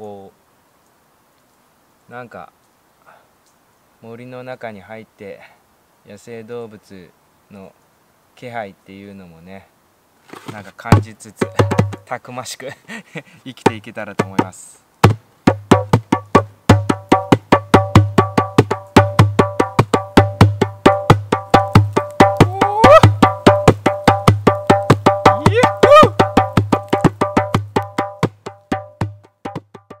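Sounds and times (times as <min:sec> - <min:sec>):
djembe drumming: 0:10.9 - 0:12.1, 0:13.6 - 0:30.0
short rising cries: 0:22.4 - 0:23.3, 0:25.3 - 0:26.2.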